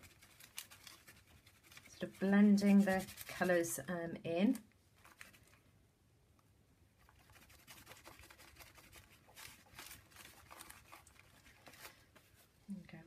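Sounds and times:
fingers smearing paint on paper: 0.0s - 3.6s, 7.0s - 11.9s.

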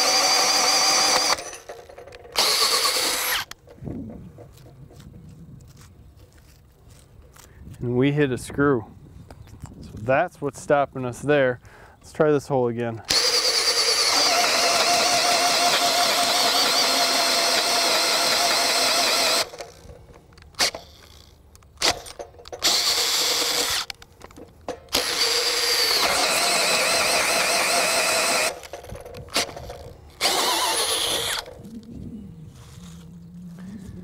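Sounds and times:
drill boring into wet wood: 0.0s - 3.6s, 13.1s - 19.8s, 20.6s - 24.0s, 24.9s - 31.6s.

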